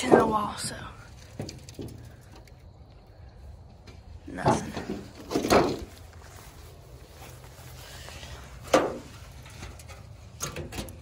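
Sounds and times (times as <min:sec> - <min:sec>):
roofing tin scraping: 0:08.0 - 0:11.0.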